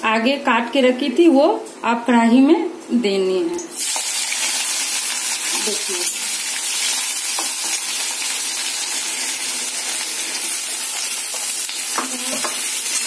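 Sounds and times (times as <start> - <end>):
onions sizzling in oil: 3.7 - 13.0.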